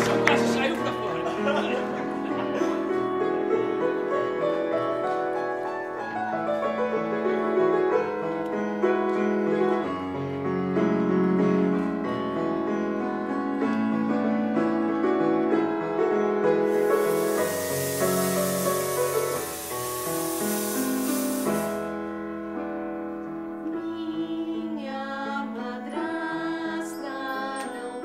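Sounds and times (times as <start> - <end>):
piano music: 16.7 - 22.5.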